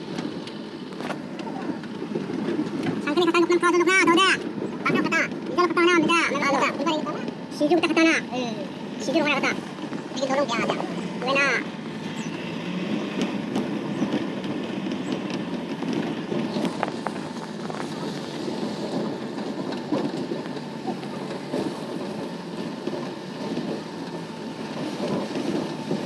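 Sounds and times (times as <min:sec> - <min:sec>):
engine and tyres rumbling: 0:00.0 - 0:26.0
car knocks and rattles: 0:09.0 - 0:26.0.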